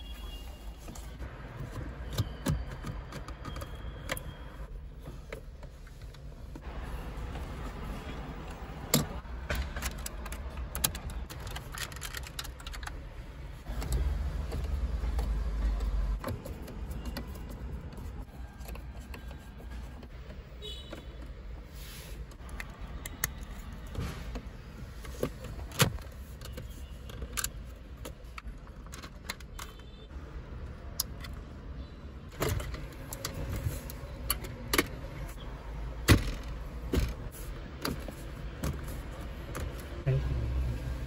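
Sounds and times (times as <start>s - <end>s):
plastic clicks and rattles: 9.0s - 13.0s.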